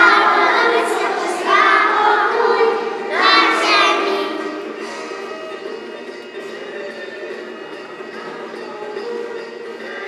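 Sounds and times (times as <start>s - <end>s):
children singing a carol: 0.0s - 5.0s.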